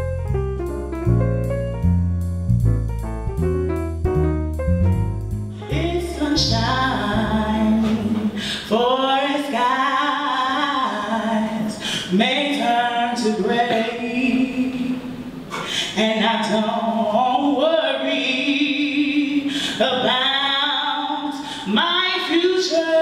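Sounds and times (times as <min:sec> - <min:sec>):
piano and bass music: 0:00.0 - 0:15.5
woman singing a cappella: 0:05.6 - 0:23.0.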